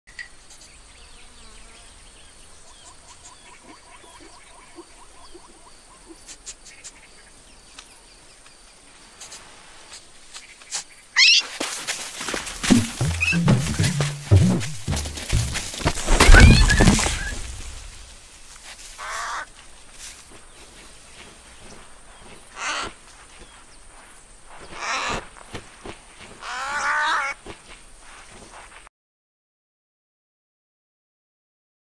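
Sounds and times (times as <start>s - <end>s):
faint insect buzz: 0.2s - 14.3s, 14.9s - 28.9s
cartoon animal high cry: 11.2s - 11.5s
loud clattering: 12.6s - 18.1s.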